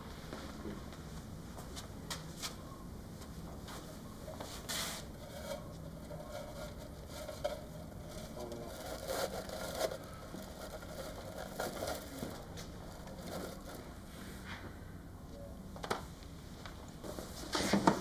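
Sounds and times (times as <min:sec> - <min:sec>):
artificial tree branches rustling: 0:03.6 - 0:14.8.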